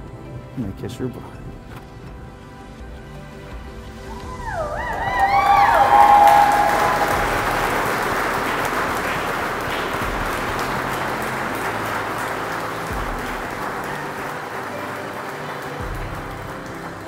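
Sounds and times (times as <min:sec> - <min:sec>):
guests applauding: 0:04.0 - 0:17.0.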